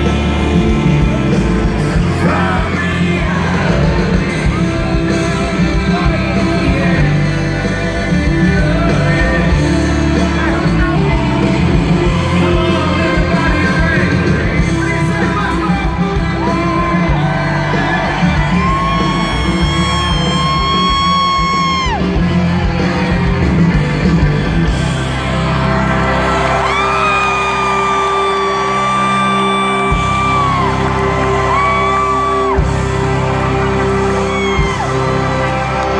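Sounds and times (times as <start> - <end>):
person singing: 0.0 - 21.7
crowd cheering and yelling: 0.0 - 35.9
live country rock band playing: 0.0 - 35.9.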